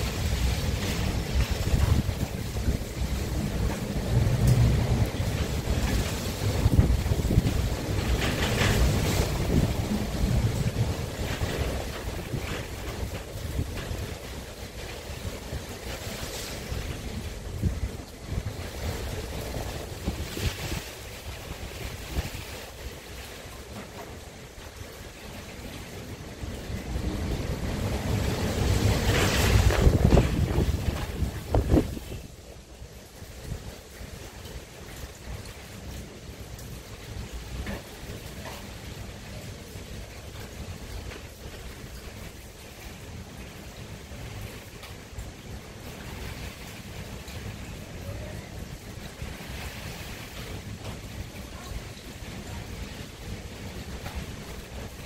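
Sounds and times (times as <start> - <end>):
wind on microphone: 0.0 - 55.0
wood fire burning: 0.0 - 55.0.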